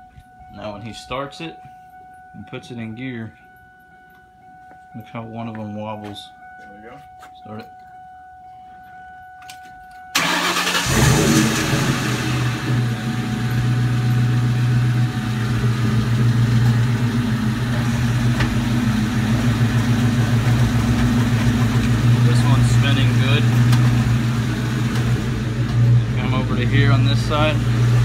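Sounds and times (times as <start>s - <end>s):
car engine starting and running: 10.1s - 28.0s.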